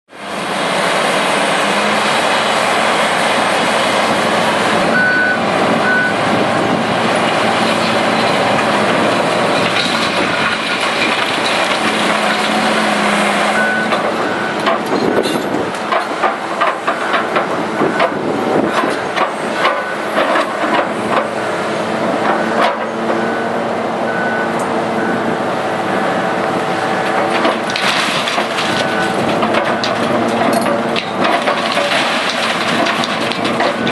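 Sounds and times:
excavator diesel engine running: 0.1 - 33.9
bricks cracking and falling: 7.7 - 13.0, 27.1 - 33.9.

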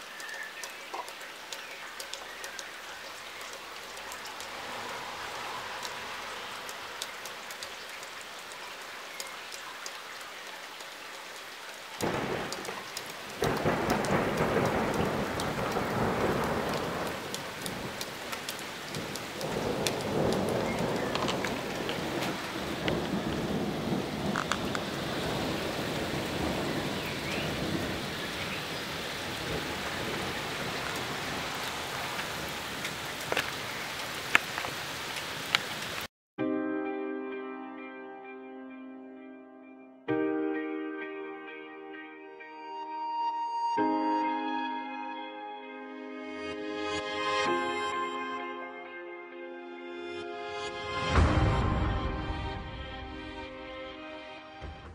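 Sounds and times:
steady rain falling: 0.0 - 36.1
rolling thunder: 12.0 - 32.6, 51.1 - 53.3.

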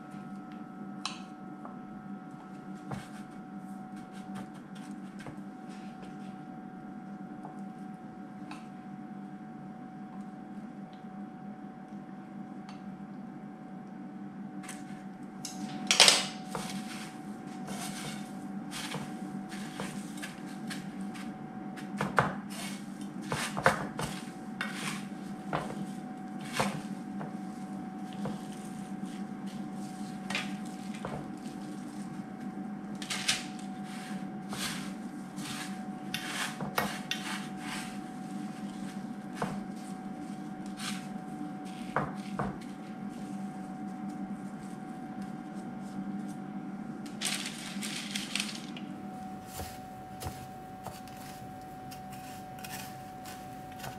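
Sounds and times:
steady low hum: 0.0 - 53.9
breadcrumbs rustling and crunching: 16.5 - 46.4, 47.0 - 53.9.

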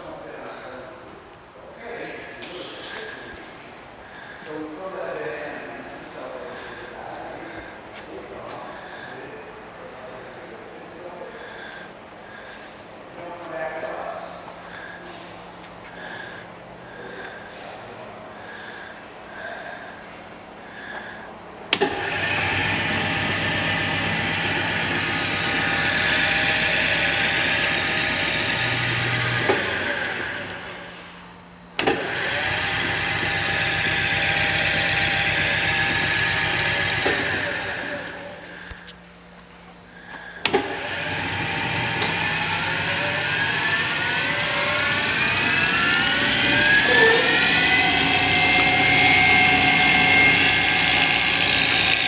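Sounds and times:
lathe spindle whine: 21.7 - 31.2, 31.8 - 38.8, 40.4 - 52.0.

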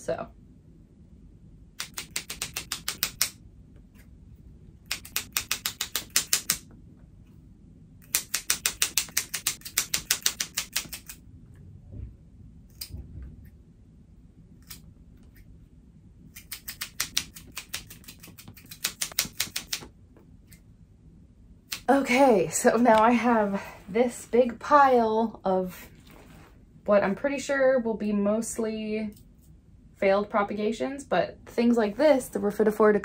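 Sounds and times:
scissors snipping: 4.9 - 6.6, 8.0 - 11.2, 14.6 - 15.5, 16.3 - 19.9.

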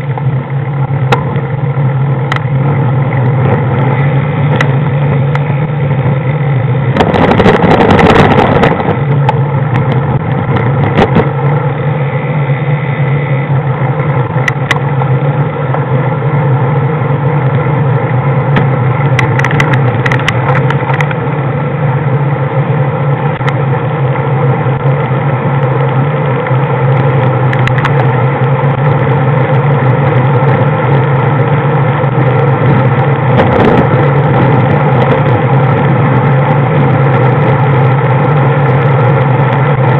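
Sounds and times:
vehicle engine humming: 0.0 - 39.9
wheels rumbling over cobblestones: 0.0 - 39.9.

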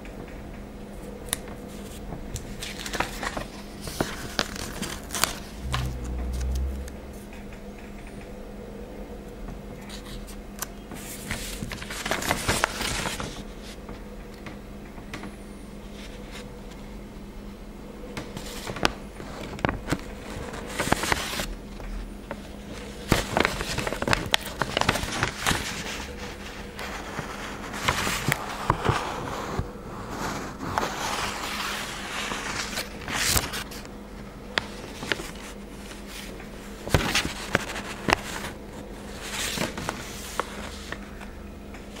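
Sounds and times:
faint steady hum: 0.0 - 42.0
paper handling taps and rustles: 1.9 - 5.9, 11.0 - 13.4, 22.3 - 26.0, 34.6 - 38.6.

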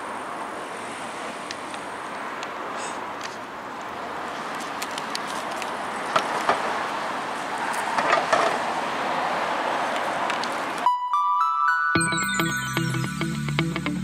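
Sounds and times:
traffic noise: 0.0 - 11.0
held electronic tone: 10.9 - 14.0.

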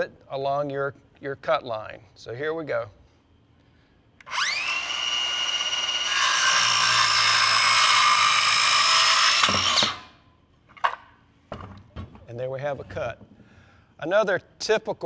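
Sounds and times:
circular saw cutting wood: 4.2 - 10.1.

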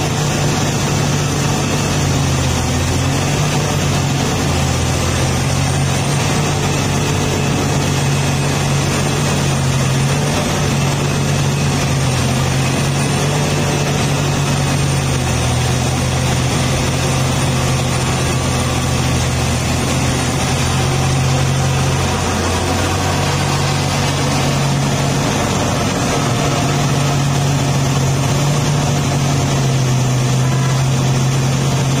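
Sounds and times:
excavator diesel engine drone: 0.0 - 32.0.

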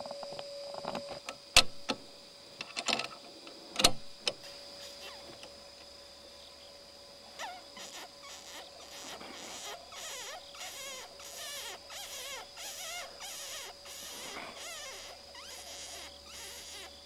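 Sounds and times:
rhythmic pulsing hiss: 0.0 - 17.0
high-pitched distress call squeaks: 7.4 - 17.0.

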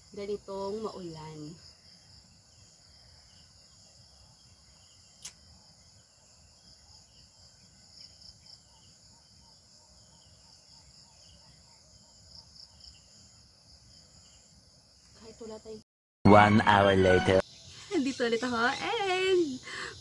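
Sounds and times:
insects trilling: 0.0 - 15.8, 17.1 - 20.0
sharp click: 5.2 - 5.4.

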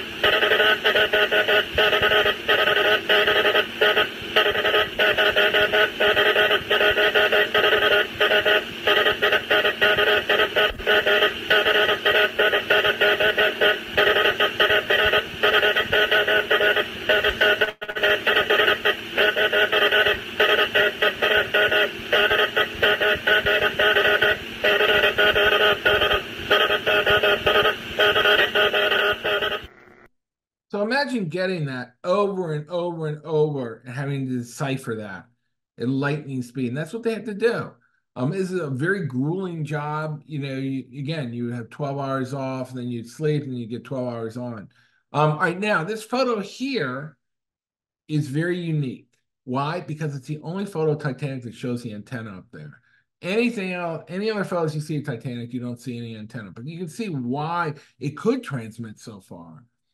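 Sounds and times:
morse code beeping: 0.0 - 30.1
radio static: 0.0 - 30.1.

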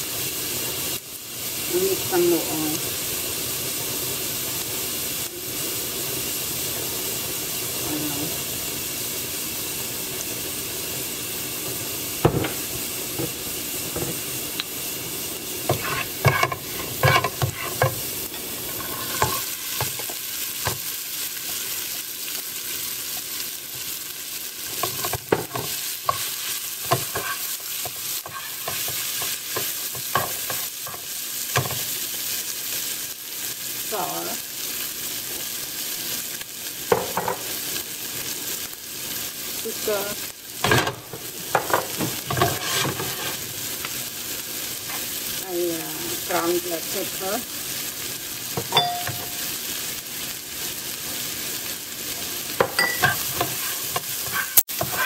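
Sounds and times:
onion sizzling in hot oil: 0.0 - 55.0
spatula scraping frying pan: 15.6 - 20.2, 24.8 - 31.8, 41.6 - 43.5, 52.7 - 55.0.

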